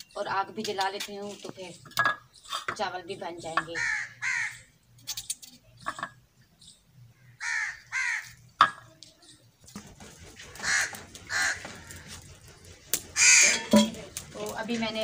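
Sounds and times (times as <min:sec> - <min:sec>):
crow cawing: 0:03.7 - 0:04.7, 0:07.2 - 0:08.4, 0:10.6 - 0:12.2, 0:13.2 - 0:13.7.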